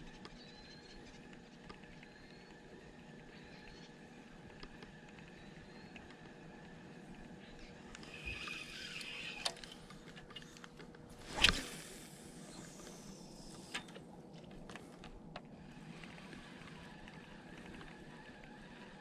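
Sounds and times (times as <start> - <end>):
fishing rod whoosh: 11.2 - 12.6.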